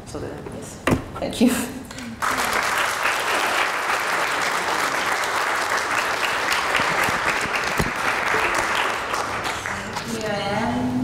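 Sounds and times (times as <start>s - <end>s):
audience applauding: 2.2s - 10.5s.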